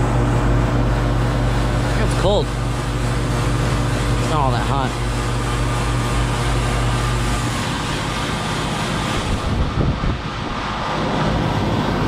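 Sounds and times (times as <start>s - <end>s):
compressor hum: 0.0s - 12.0s
condenser fan rushing: 0.0s - 12.0s.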